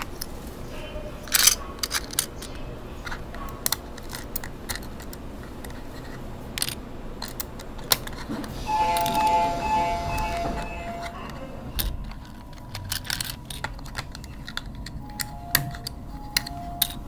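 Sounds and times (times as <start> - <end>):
plastic toys clicking and rattling: 0.0 - 9.2, 11.0 - 17.0
subway train rumble: 8.3 - 17.0
steady two-pitch tone: 8.6 - 11.8.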